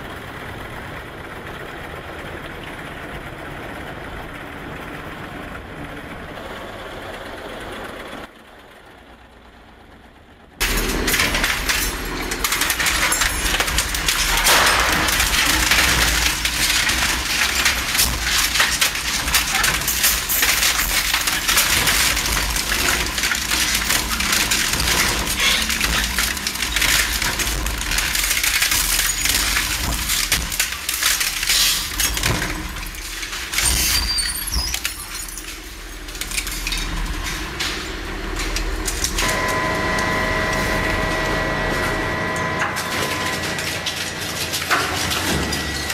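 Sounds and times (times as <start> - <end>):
shredder whining: 10.6 - 33.5, 35.8 - 45.6
shredder crushing and tearing: 10.6 - 45.9.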